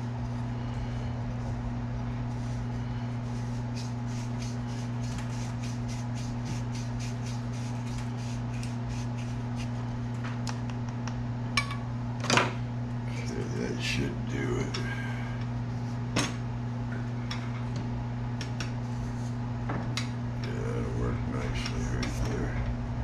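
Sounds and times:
steady low hum: 0.0s - 23.0s
reamer rasping strokes: 2.3s - 9.8s.

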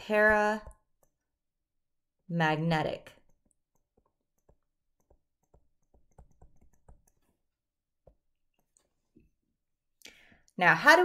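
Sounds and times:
stylus tapping on tablet screen: 3.1s - 9.0s.

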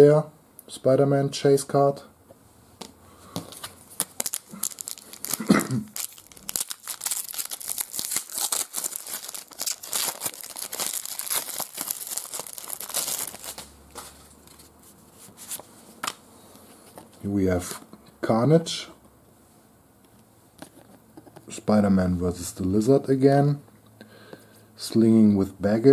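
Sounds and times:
foil wrapper tearing and crinkling: 3.9s - 13.7s.

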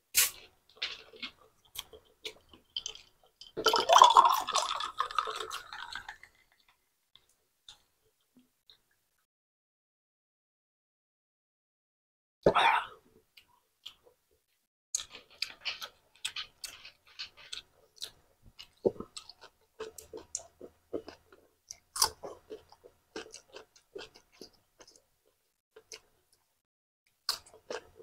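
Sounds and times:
chewing food: 0.3s - 8.0s, 15.0s - 26.5s, 27.1s - 28.0s.

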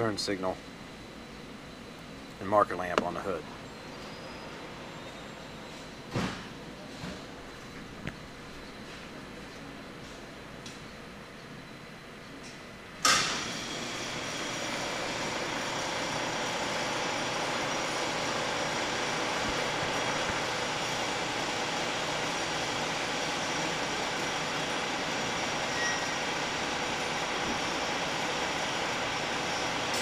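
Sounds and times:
machinery drone: 13.0s - 30.0s.

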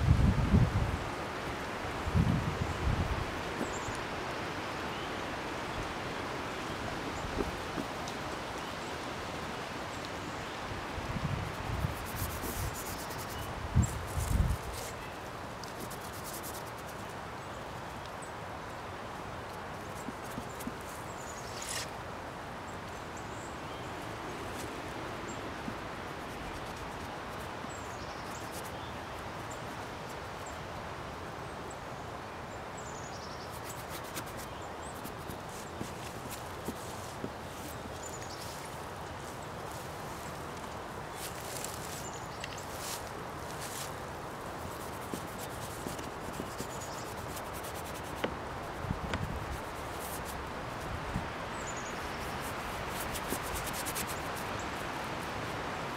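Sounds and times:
outdoor background noise: 0.0s - 55.9s
paint scrubbing on board: 11.8s - 13.5s, 15.6s - 17.0s, 33.5s - 37.7s, 44.6s - 50.4s, 52.0s - 54.5s.

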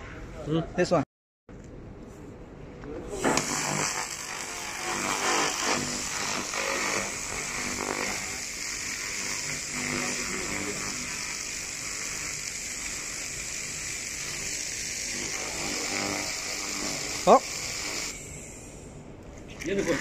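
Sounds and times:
laser cleaner high-pitched hissing buzz: 3.2s - 18.9s.

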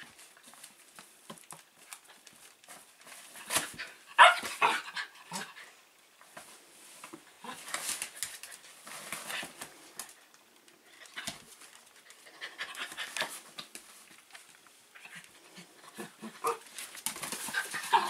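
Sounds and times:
paws scuffling: 11.2s - 18.0s.

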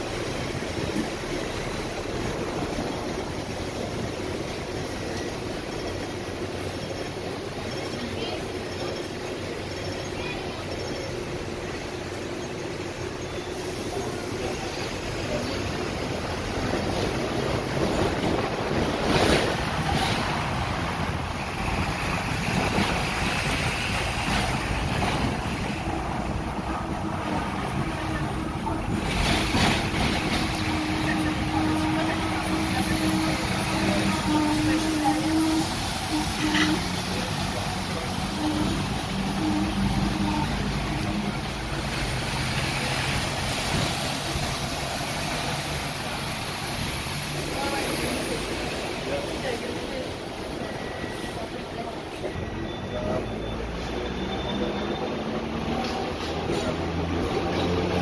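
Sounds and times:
road traffic: 0.0s - 58.0s
tram wheels and motor rumbling: 0.0s - 58.0s
wind on microphone: 16.3s - 31.5s.

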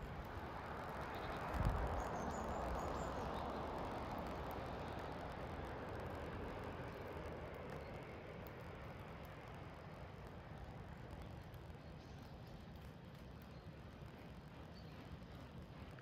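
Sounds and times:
small birds chirping: 1.0s - 5.4s, 10.6s - 16.0s.

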